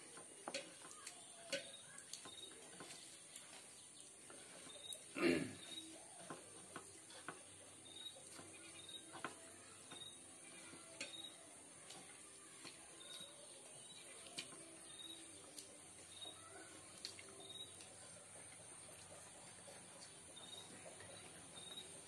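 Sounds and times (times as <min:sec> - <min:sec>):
fingers squishing wet food: 0:00.0 - 0:20.6
faint high chirp: 0:07.8 - 0:11.5, 0:13.0 - 0:15.3.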